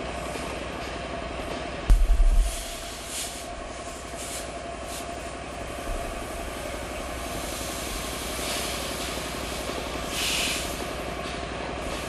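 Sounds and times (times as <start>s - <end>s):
steam hiss: 2.0s - 12.0s
model steam engine running: 2.6s - 12.0s.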